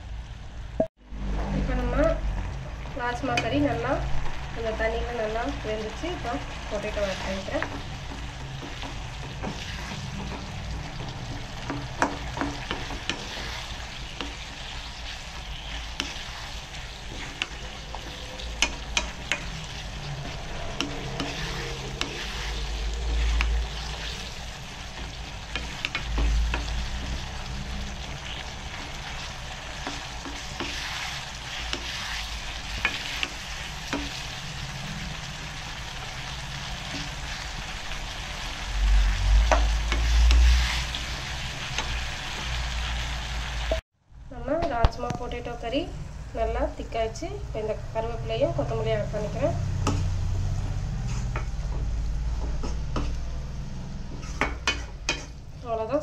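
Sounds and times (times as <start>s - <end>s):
curry sizzling in a pan: 1.9s - 43.8s.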